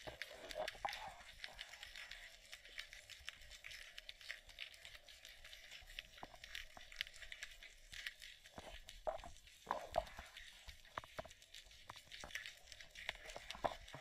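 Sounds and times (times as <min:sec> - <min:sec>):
underwater crackling clicks and pops: 0:00.0 - 0:14.0.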